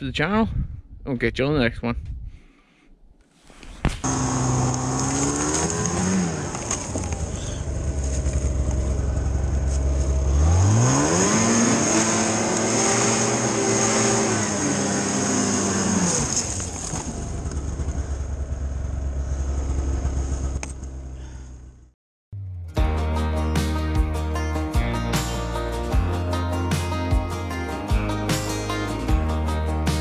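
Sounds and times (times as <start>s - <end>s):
snowmobile engine revving: 4.0s - 20.5s.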